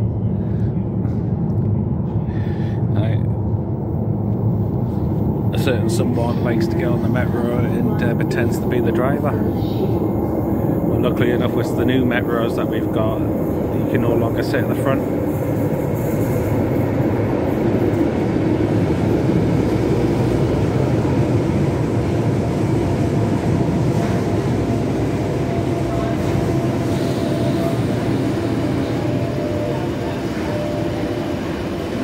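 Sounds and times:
train rolling into station: 0.0s - 32.0s
train brakes whining: 23.7s - 32.0s.

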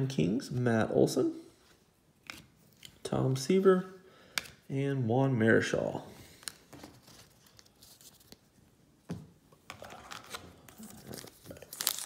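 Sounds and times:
cards rustling: 6.2s - 8.6s, 9.7s - 12.0s.

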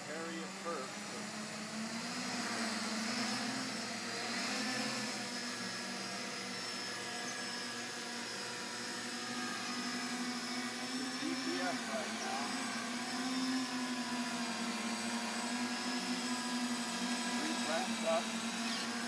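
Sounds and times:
model aircraft motor buzzing whine: 0.0s - 19.0s.

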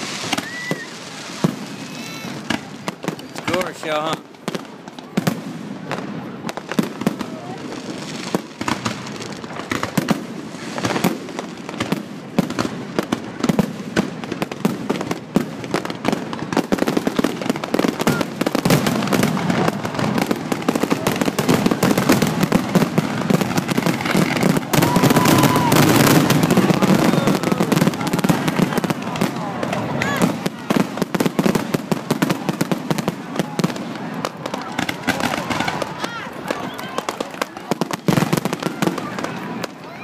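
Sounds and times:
fireworks bangs and crackle: 0.0s - 40.0s.

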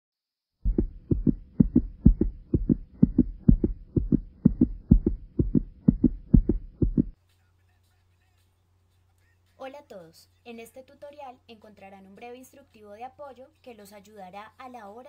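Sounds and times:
pulsing low double thumps: 0.6s - 7.2s.

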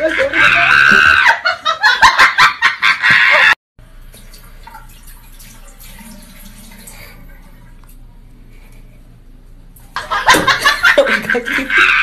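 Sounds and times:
loud laughter: 0.0s - 3.6s, 10.0s - 12.0s.

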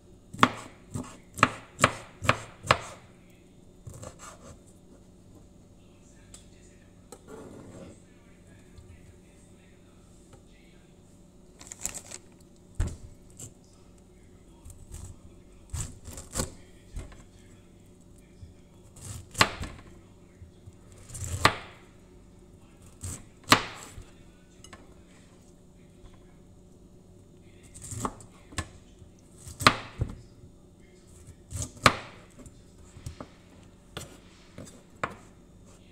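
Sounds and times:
knife slicing pineapple: 0.4s - 3.1s, 3.8s - 4.6s, 14.6s - 17.2s, 18.8s - 19.9s, 20.9s - 21.8s, 22.8s - 24.1s, 27.7s - 28.3s, 29.3s - 30.2s, 31.2s - 33.2s.

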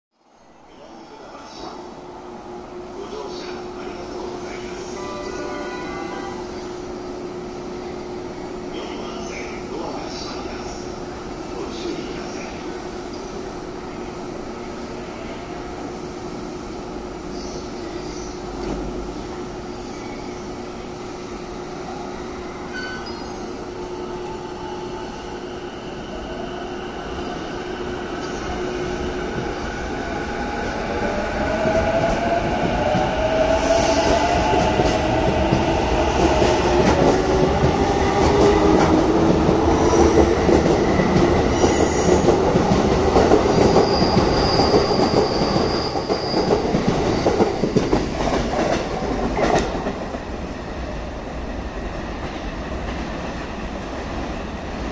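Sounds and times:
electric train humming: 12.5s - 54.9s.

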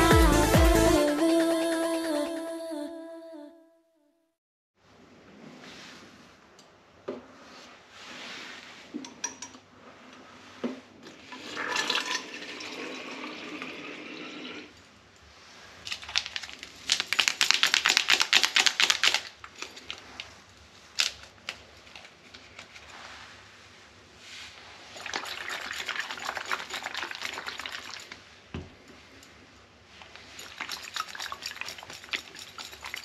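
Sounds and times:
water running into sink: 11.3s - 14.7s.

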